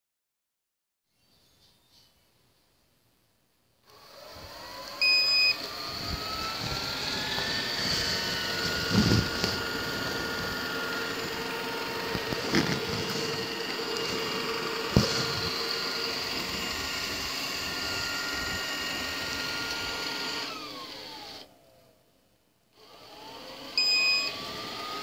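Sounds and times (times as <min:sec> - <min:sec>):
robot vacuum motor whining: 0:03.9 - 0:21.5, 0:22.8 - 0:25.0.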